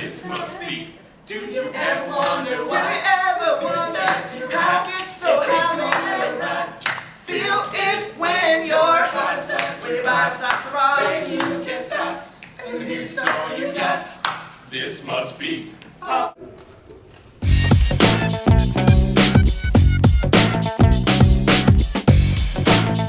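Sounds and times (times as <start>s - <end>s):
boys singing pop song: 0.0s - 14.2s
hand claps: 6.8s - 7.2s, 14.2s - 14.5s.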